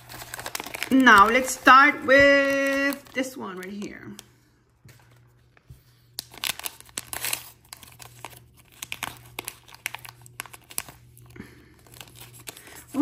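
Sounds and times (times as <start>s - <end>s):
wrapper packet tearing and crinkling: 0.0s - 1.7s, 2.3s - 4.2s, 6.1s - 13.0s.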